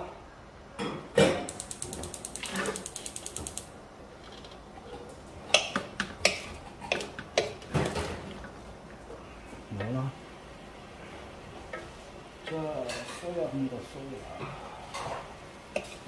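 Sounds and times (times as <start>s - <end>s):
fast mechanical clicks: 1.5s - 3.7s.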